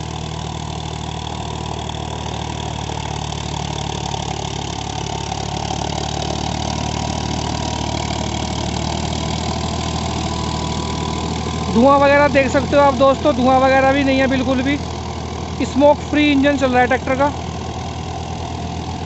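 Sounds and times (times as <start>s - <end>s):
tractor engine running under load: 0.0s - 19.0s.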